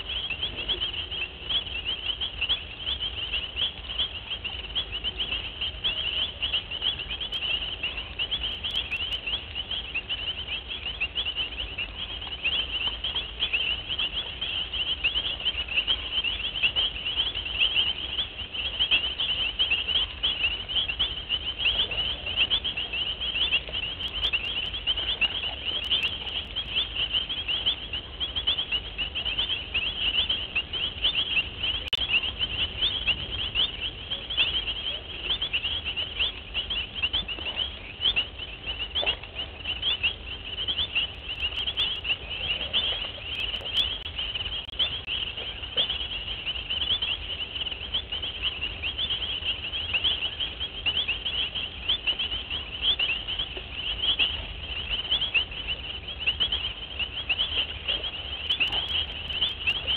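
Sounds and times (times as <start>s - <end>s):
high-pitched chirping chorus: 0.0s - 59.9s.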